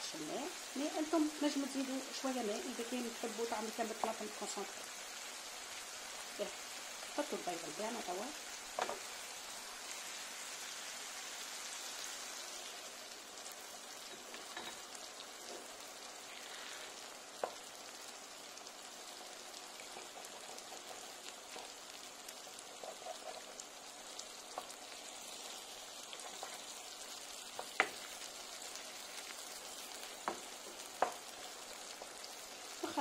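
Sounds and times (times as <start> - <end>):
sauce sizzling in frying pan: 0.0 - 33.0.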